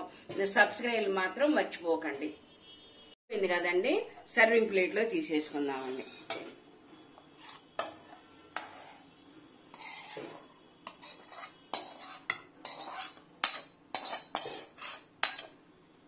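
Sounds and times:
spoon scraping metal pan: 5.4s - 15.6s.

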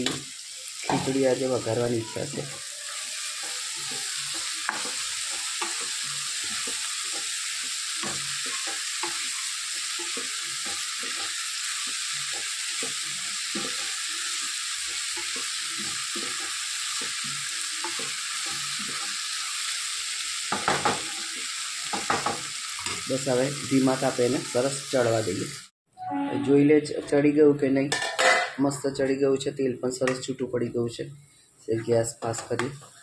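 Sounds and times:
vegetables sizzling in oil: 0.0s - 25.7s, 32.1s - 33.0s
spatula scraping and stirring: 2.3s - 19.3s.

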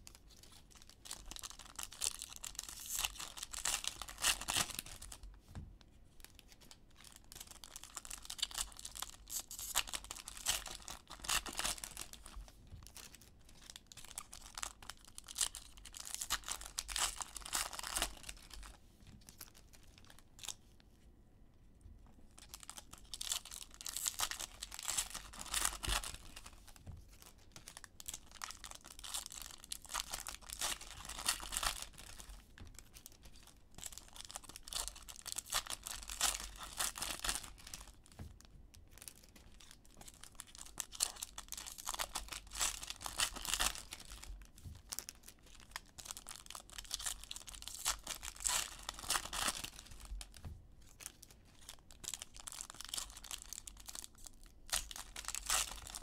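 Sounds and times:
foil wrappers tearing and crinkling: 51.6s - 56.0s.

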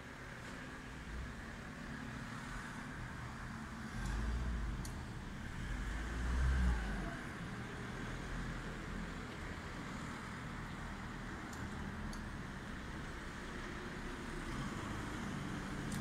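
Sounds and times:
steady traffic hum: 0.0s - 16.0s
passing vehicle rumble: 2.2s - 12.0s
faint clicks: 11.5s - 12.3s.

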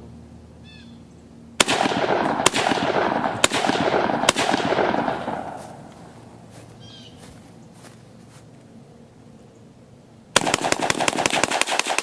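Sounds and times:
rifle shots with rolling echo: 1.6s - 5.9s, 10.4s - 12.0s.

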